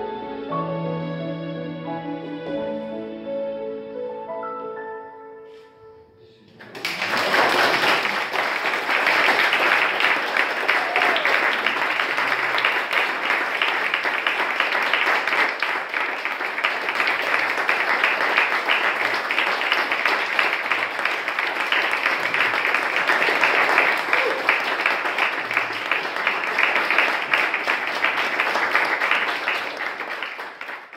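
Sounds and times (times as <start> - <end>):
audience applauding: 6.4 - 30.9.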